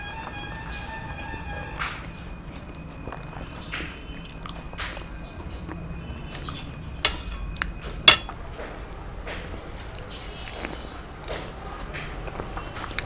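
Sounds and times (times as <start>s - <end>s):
sharp clinks against metal plate: 7.0s - 8.4s.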